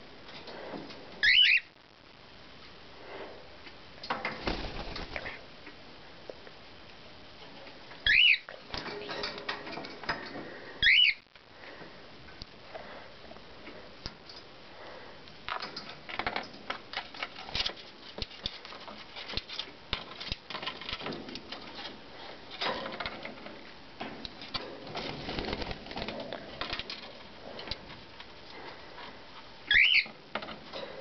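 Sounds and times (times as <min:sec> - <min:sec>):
cockatiel whistled calls: 0:01.2 - 0:01.7, 0:08.0 - 0:08.4, 0:10.8 - 0:11.2, 0:29.7 - 0:30.1.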